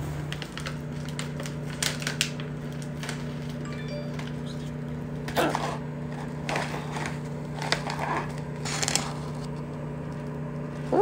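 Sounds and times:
foil pouch crinkling: 0:00.3 - 0:03.6, 0:06.4 - 0:09.5.

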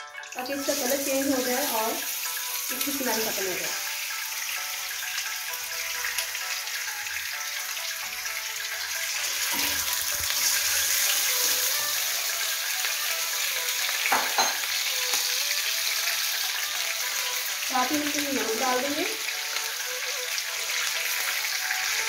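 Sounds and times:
chicken sizzling in hot oil: 0:00.0 - 0:22.0.

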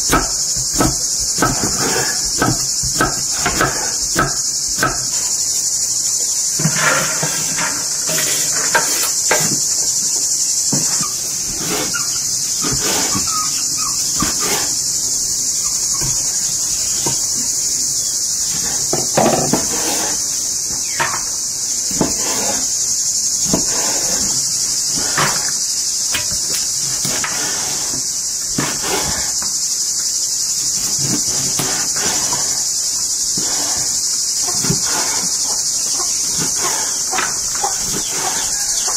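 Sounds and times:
knife chopping on wooden board: 0:00.0 - 0:05.2
chorus of insects: 0:00.0 - 0:38.9.

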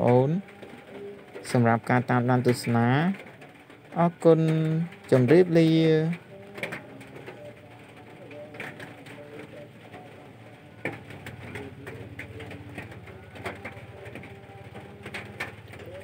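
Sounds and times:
dove cooing: 0:00.4 - 0:01.4, 0:06.2 - 0:16.0.

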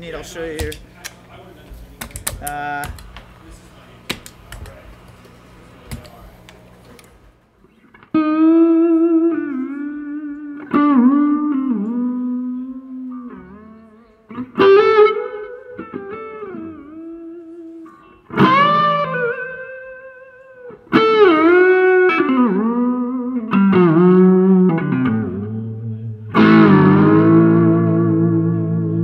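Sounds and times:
electric guitar with tremolo bends: 0:07.8 - 0:29.0.

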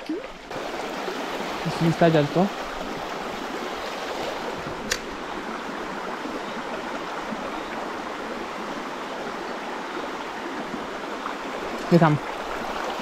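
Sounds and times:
stream flowing: 0:00.0 - 0:13.0
sharp click: 0:04.8 - 0:05.1.

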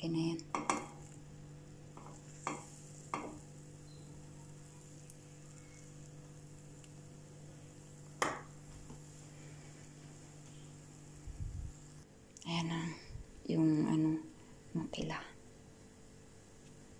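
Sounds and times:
batter frying in a pan: 0:00.0 - 0:12.0
low hum: 0:00.0 - 0:14.9.

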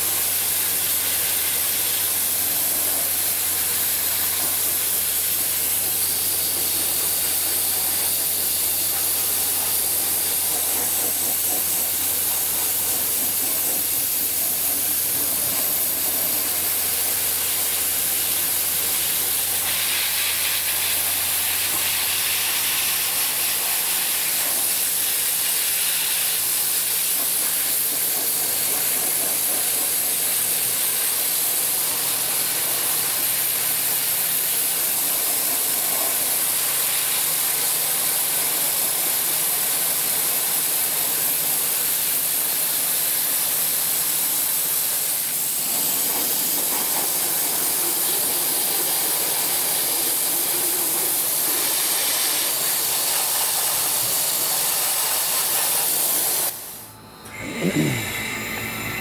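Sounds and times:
dry ice blasting gun hissing: 0:00.0 - 0:59.0
steady low hum: 0:56.5 - 0:59.0.

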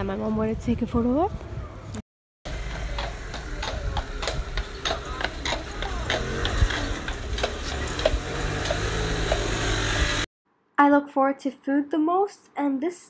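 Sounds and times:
carriage wheels rumbling: 0:02.5 - 0:10.3
horse hooves clip-clopping on pavement: 0:02.5 - 0:10.3.

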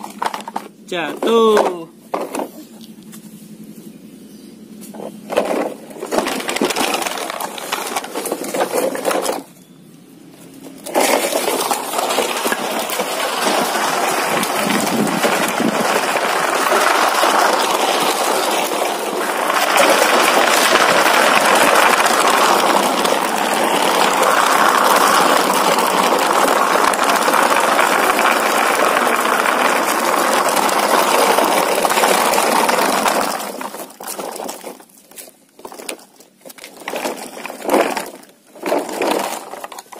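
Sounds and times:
plastic toy truck rattling over concrete: 0:00.0 - 0:03.6, 0:04.8 - 0:09.6, 0:10.4 - 0:39.9.

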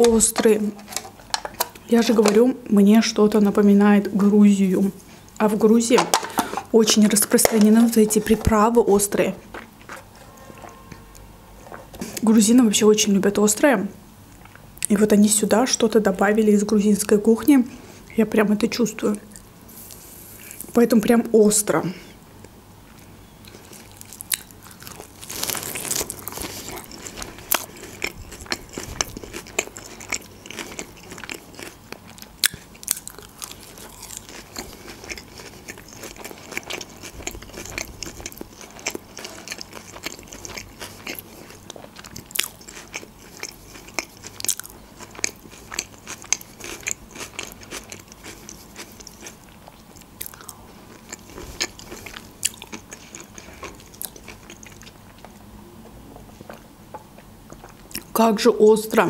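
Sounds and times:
crunchy lettuce biting and chewing: 0:23.0 - 0:55.3.

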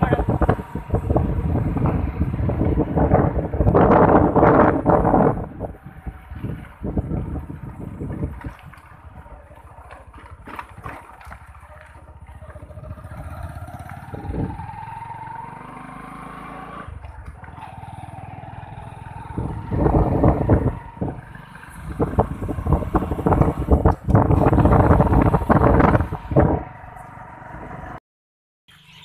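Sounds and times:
gusty wind on microphone: 0:00.0 - 0:09.4, 0:12.4 - 0:15.0, 0:16.8 - 0:26.8
motorbike engine whining: 0:00.0 - 0:28.0.

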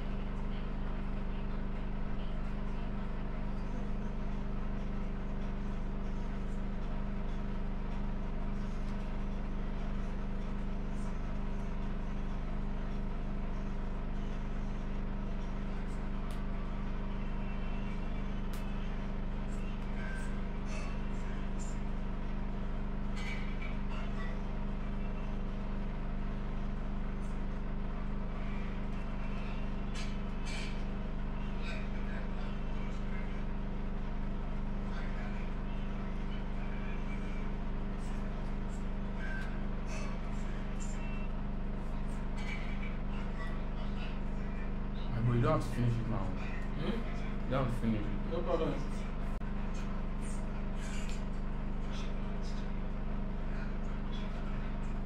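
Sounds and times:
low motor hum: 0:00.0 - 0:55.0.

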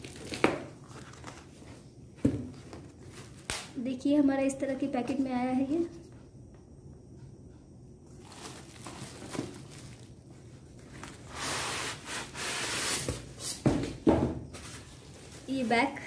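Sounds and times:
box thumping on floor: 0:02.2 - 0:02.7, 0:13.6 - 0:14.4
cardboard and styrofoam rustling: 0:08.2 - 0:13.8, 0:14.5 - 0:16.0.

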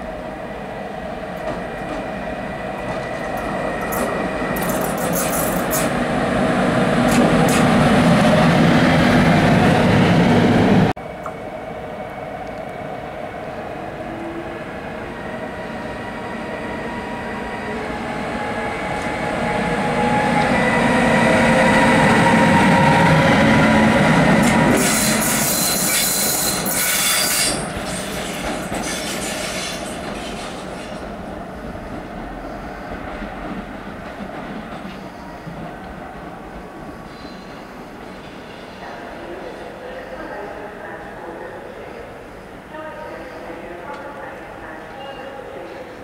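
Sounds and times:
electric locomotive whine: 0:00.0 - 0:46.0
wheels rumbling on rails: 0:02.8 - 0:10.9
high wheel squeal: 0:24.7 - 0:29.9.

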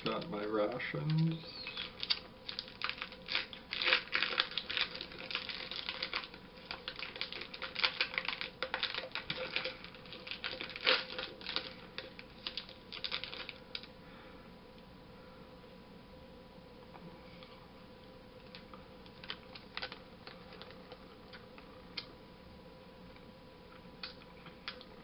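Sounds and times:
plastic wrapper crackling: 0:00.0 - 0:13.9, 0:18.5 - 0:21.4.

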